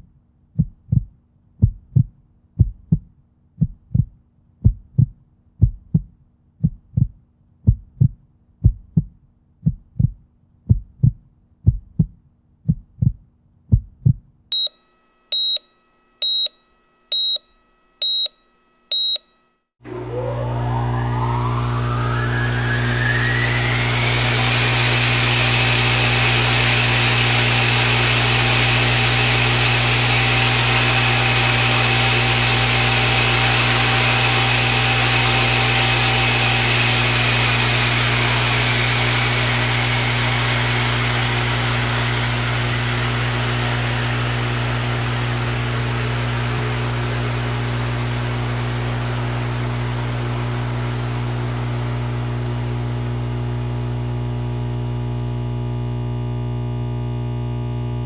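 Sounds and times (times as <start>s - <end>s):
high electronic beeps: 15.4s - 15.6s, 16.2s - 16.5s, 17.1s - 17.4s, 18.0s - 18.3s, 18.9s - 19.2s
electrical hum with rising whine: 19.8s - 58.0s.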